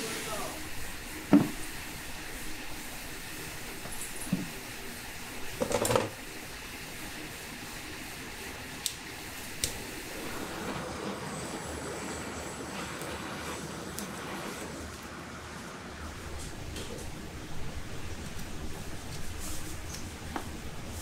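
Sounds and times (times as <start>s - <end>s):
aerosol can spraying: 0.0s - 4.6s
gas torch flame hissing: 0.0s - 21.0s.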